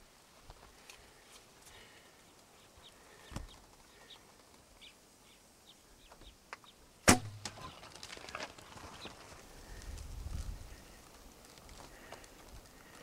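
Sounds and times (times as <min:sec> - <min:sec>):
hooves scrambling on sand: 0:07.7 - 0:13.0.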